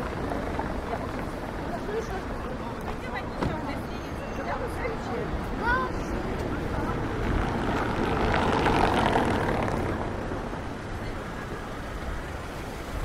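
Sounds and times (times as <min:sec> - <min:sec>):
low rumble of traffic: 0:00.0 - 0:13.0
vehicle passing by: 0:04.8 - 0:13.0.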